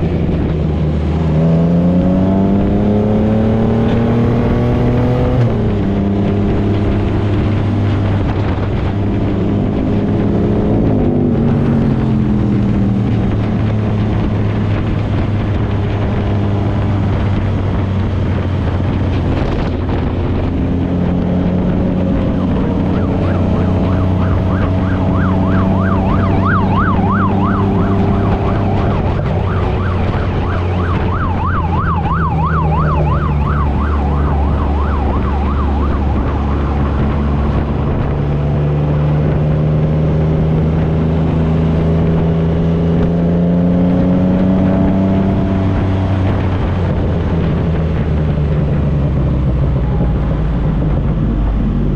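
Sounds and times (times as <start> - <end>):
vehicle engines running: 0.0 - 51.9
emergency siren yelping: 21.6 - 38.4.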